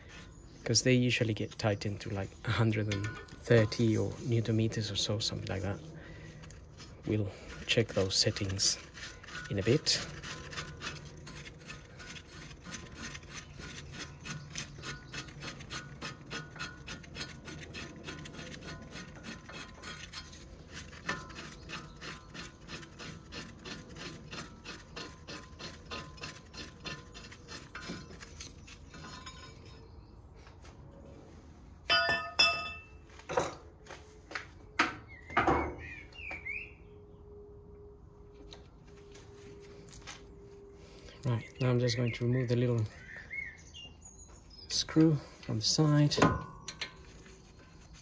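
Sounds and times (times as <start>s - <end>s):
metal clanks and knocks: 2.7s - 4.2s, 25.1s - 29.9s, 31.9s - 33.7s, 46.0s - 47.5s.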